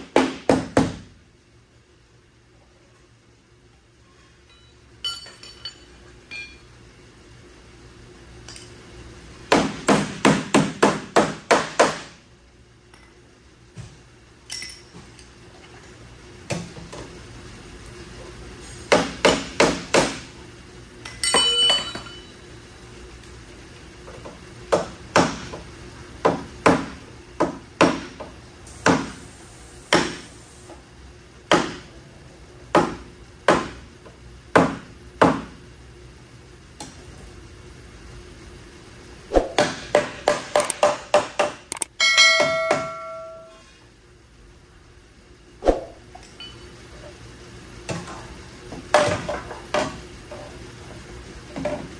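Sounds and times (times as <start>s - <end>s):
ringing metal clank: 4.5s - 6.6s, 21.1s - 22.4s, 42.0s - 43.6s
hammer striking sheet metal: 39.4s - 43.6s.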